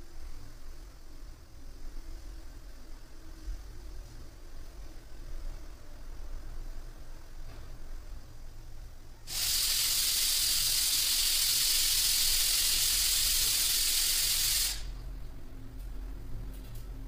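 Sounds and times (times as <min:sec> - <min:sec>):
loud steady hiss: 0:00.0 - 0:15.6.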